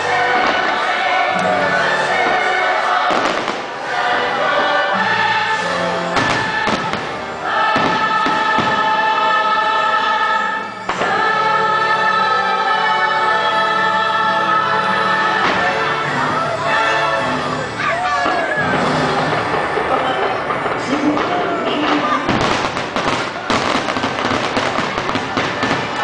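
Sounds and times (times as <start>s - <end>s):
choir singing held chords: 0.0s - 26.0s
orchestral music: 0.0s - 26.0s
firework bangs: 0.1s - 1.3s, 2.2s - 4.7s, 6.1s - 9.2s, 10.7s - 11.3s, 18.2s - 26.0s.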